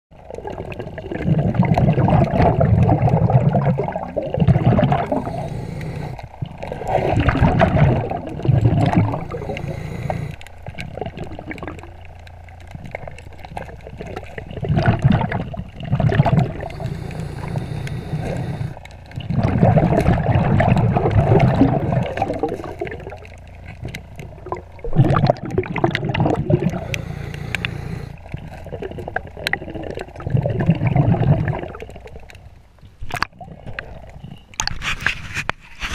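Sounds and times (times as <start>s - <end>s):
scuba exhale bubbles rushing: 0.2s - 32.3s, 33.0s - 34.9s
underwater hiss: 4.9s - 7.8s, 8.8s - 10.5s, 16.3s - 18.9s, 26.5s - 28.2s.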